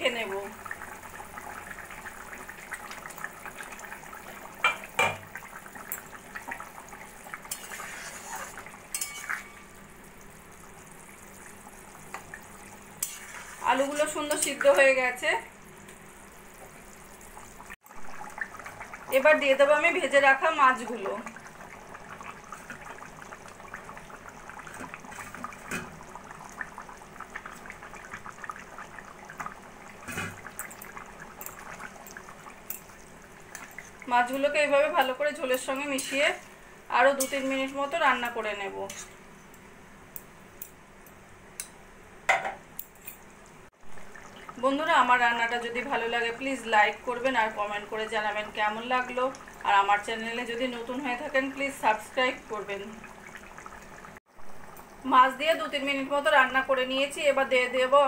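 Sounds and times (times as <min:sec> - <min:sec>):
broth simmering and bubbling: 0:00.0 - 0:58.0
metal spatula clinking pan: 0:08.9 - 0:09.6.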